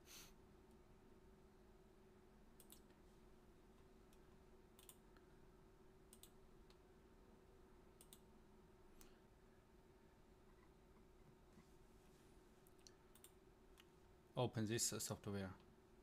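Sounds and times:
low steady hum: 0:00.0 - 0:16.0
computer mouse clicks: 0:02.6 - 0:03.0, 0:04.1 - 0:05.0, 0:06.1 - 0:06.8, 0:08.0 - 0:08.3, 0:12.6 - 0:13.9.

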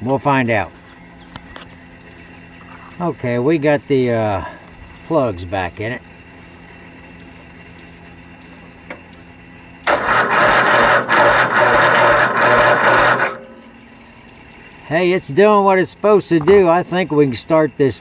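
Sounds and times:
starter cranking engine: 0:09.8 - 0:13.6.

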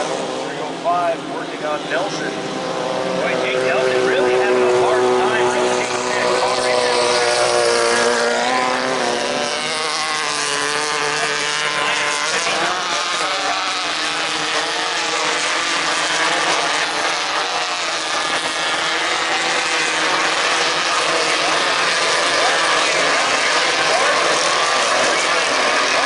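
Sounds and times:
racing buggy engines revving: 0:00.0 - 0:26.0.

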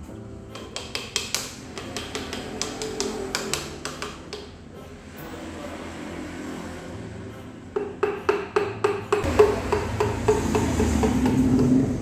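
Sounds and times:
hammer handle tapping piston: 0:00.5 - 0:04.6, 0:07.8 - 0:11.8.

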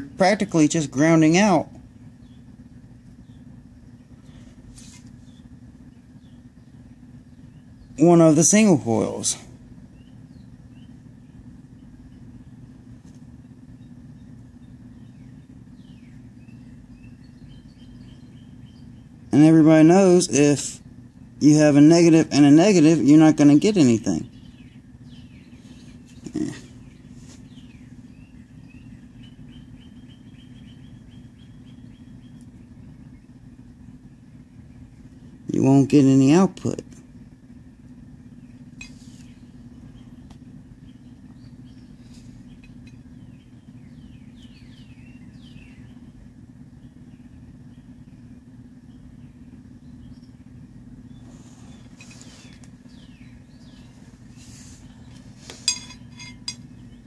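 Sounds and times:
bird chirping: 0:00.0 - 0:04.5, 0:05.2 - 0:36.4, 0:38.2 - 0:57.0
guitar amp mains hum: 0:00.0 - 0:57.0
faint scratches and squeaks: 0:04.3 - 0:05.4, 0:38.8 - 0:39.4, 0:51.2 - 0:52.7.

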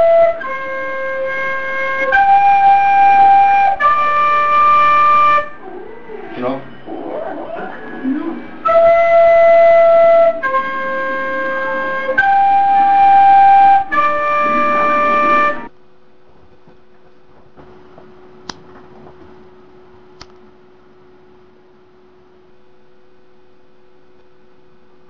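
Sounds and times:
recorder playing long notes: 0:00.0 - 0:05.6, 0:08.6 - 0:15.7
faint steady hum: 0:00.0 - 0:25.0.

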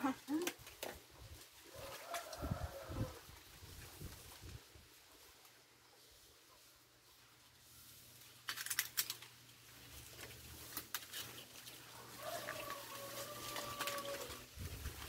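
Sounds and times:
tree leaves and branches rustling: 0:00.0 - 0:15.0
branches snapping: 0:08.4 - 0:15.0.

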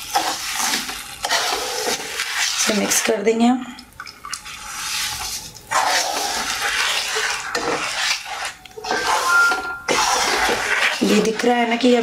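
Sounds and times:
wooden spatula scraping a pan: 0:00.0 - 0:03.2, 0:04.5 - 0:12.0.

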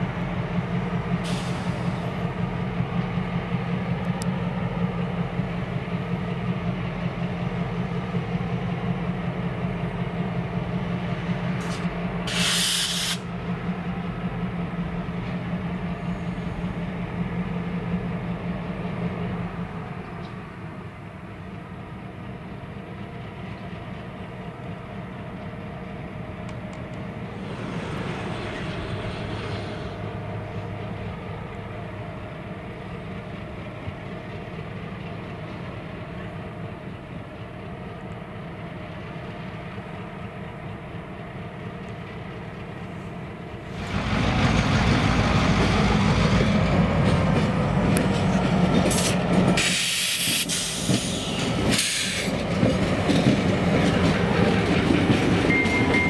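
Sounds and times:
diesel locomotives droning: 0:00.0 - 0:56.0.

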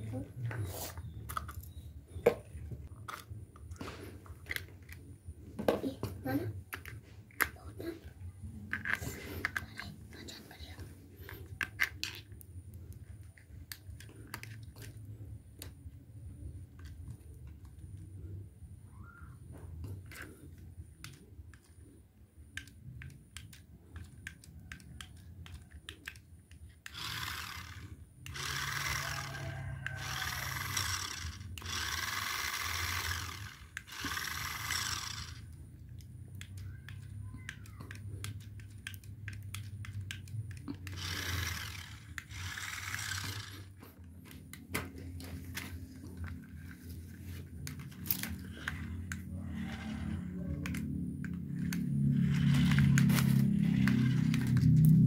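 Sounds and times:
toy motors whirring: 0:00.1 - 0:55.0
light plastic clicks: 0:35.7 - 0:41.0.

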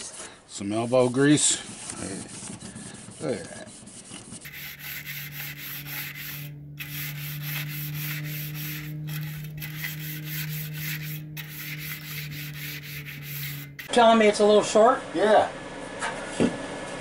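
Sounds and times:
plastic brush scrubbing metal track: 0:00.0 - 0:13.9
steady low hum: 0:00.8 - 0:14.2.

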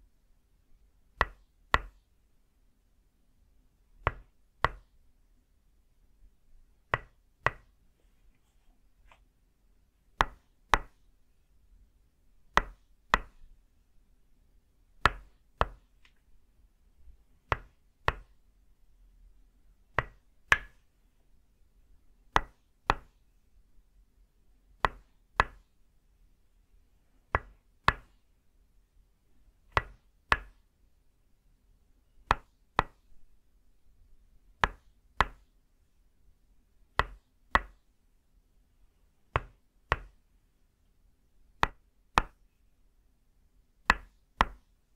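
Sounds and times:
wooden mallet striking wooden peg: 0:04.0 - 0:04.9, 0:06.9 - 0:07.7, 0:20.0 - 0:20.8, 0:22.3 - 0:23.1, 0:24.8 - 0:25.6, 0:39.4 - 0:40.2.

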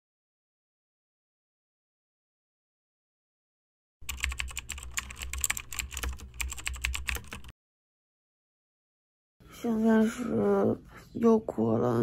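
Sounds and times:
keyboard typing clicks: 0:04.0 - 0:07.5.

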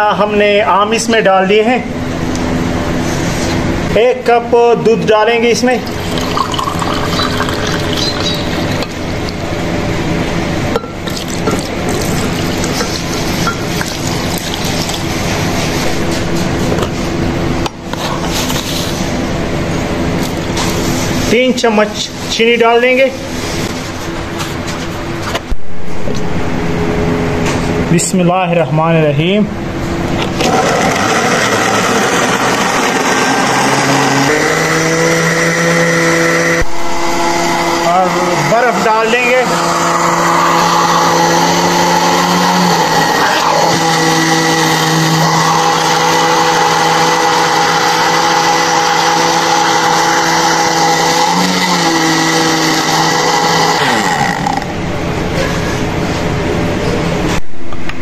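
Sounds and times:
blender whirring: 0:05.2 - 0:16.8, 0:30.2 - 0:54.8
milk pouring: 0:05.8 - 0:09.0, 0:11.1 - 0:15.5.

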